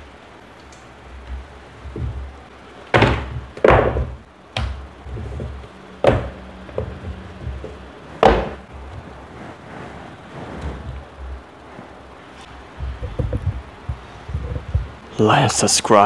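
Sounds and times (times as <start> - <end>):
objects knocking on table: 2.9 - 8.6, 12.8 - 15.0.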